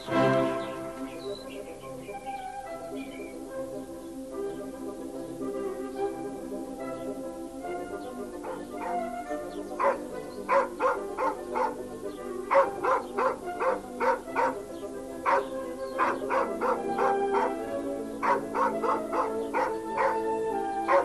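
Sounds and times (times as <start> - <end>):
background music held notes: 0.0 - 21.0
dog barking: 8.4 - 9.1, 9.8 - 11.8, 12.5 - 21.0.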